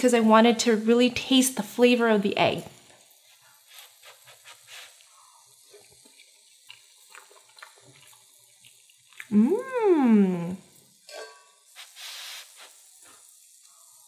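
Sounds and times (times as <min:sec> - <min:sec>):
woman humming: 0:09.3 - 0:10.6
faint ticks and crackle: 0:12.0 - 0:14.0.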